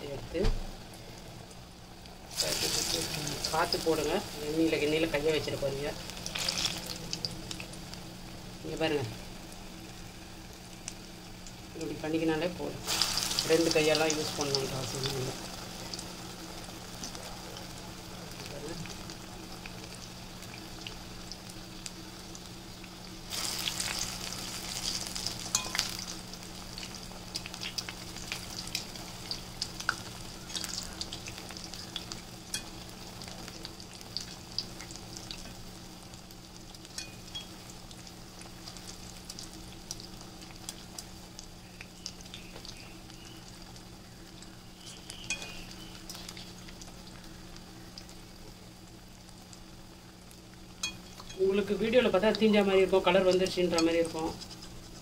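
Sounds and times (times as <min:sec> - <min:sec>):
oil sizzling and bubbling: 0:00.0 - 0:55.0.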